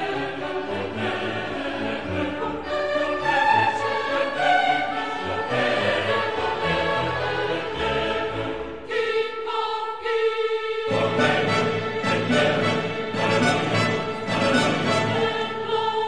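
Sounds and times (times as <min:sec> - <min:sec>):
choir singing sustained notes: 0:00.0 - 0:16.0
orchestral accompaniment: 0:10.9 - 0:16.0.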